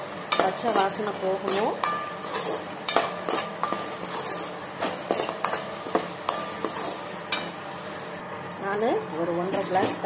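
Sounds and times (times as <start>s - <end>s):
metal spoon scraping metal pan: 0.3s - 7.6s.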